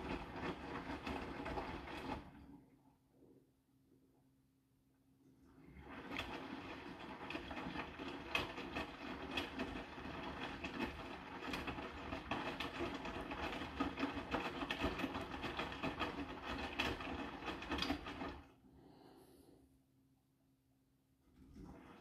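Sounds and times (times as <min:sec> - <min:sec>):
wet laundry tumbling and knocking: 0:00.0 - 0:02.5, 0:05.6 - 0:18.5
washing machine drum motor: 0:00.0 - 0:02.6, 0:05.4 - 0:18.6.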